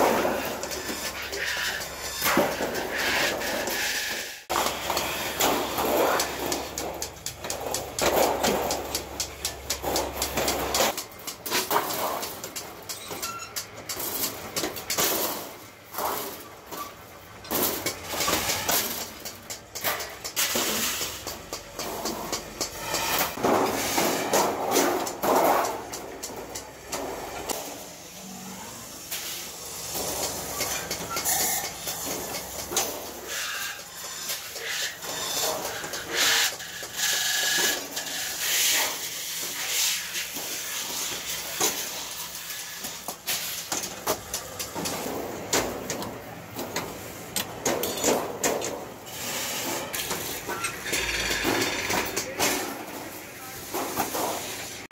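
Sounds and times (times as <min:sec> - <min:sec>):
shears snipping metal: 0:04.5 - 0:23.4.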